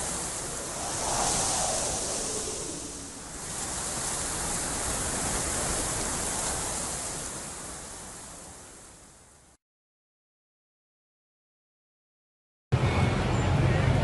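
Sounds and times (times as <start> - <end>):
steady rushing hiss: 0.0 - 9.0.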